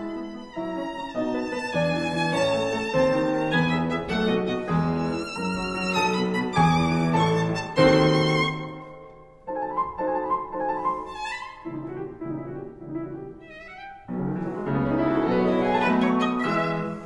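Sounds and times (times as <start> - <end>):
bowed strings: 0.0 - 9.1, 14.3 - 17.0
piano: 0.0 - 17.0.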